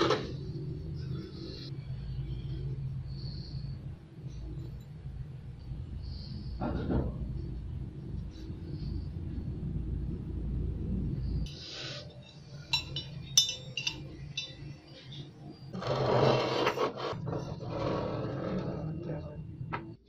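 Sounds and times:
metal pruner parts clinking: 0:12.7 - 0:14.6.

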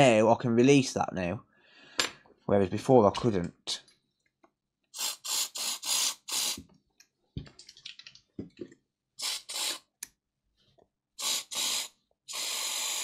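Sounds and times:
aerosol can hissing bursts: 0:05.0 - 0:06.7, 0:09.2 - 0:09.9, 0:11.2 - 0:13.0.

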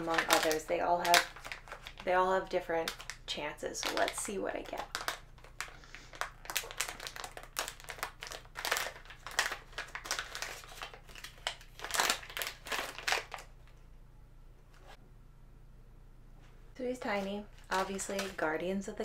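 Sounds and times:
foil bag crinkling and tearing: 0:00.0 - 0:13.5, 0:17.0 - 0:18.6.

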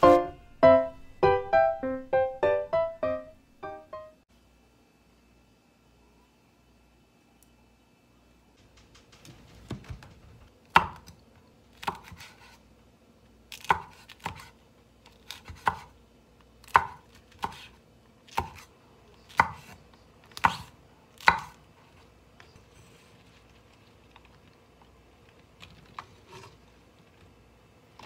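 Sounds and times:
knife chopping on wooden board: 0:11.8 - 0:12.6, 0:13.6 - 0:14.5, 0:15.3 - 0:15.9, 0:16.7 - 0:17.7, 0:18.3 - 0:18.6, 0:20.4 - 0:21.6.

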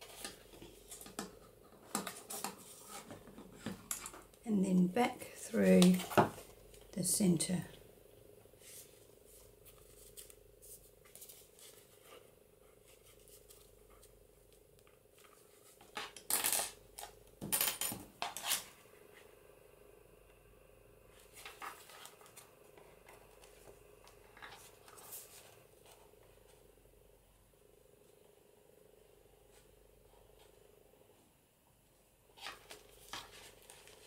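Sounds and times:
paper rustling: 0:08.6 - 0:14.1, 0:21.2 - 0:26.2, 0:32.4 - 0:34.0.

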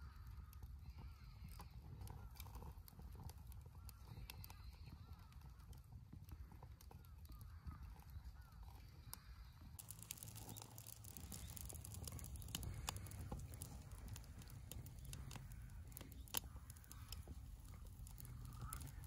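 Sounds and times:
bamboo fire crackling: 0:00.0 - 0:19.0
low steady rumble: 0:09.8 - 0:19.0.

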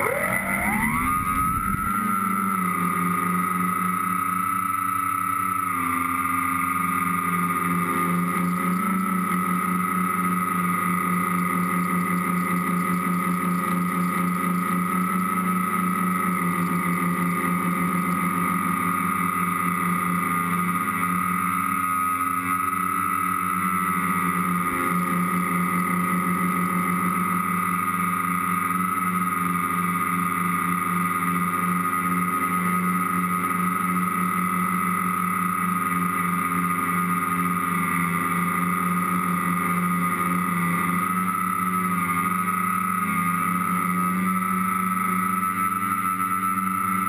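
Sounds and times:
drone propellers buzzing: 0:00.0 - 0:11.1.

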